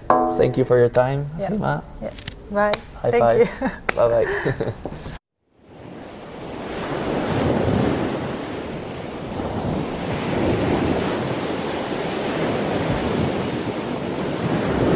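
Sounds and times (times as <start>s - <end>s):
ocean surf rushing: 5.6s - 14.9s.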